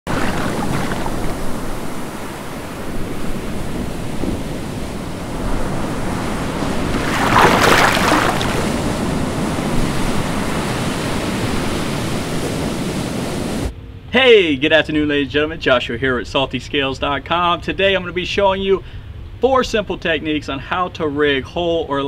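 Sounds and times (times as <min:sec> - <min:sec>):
ocean waves washing: 0:00.0 - 0:13.8.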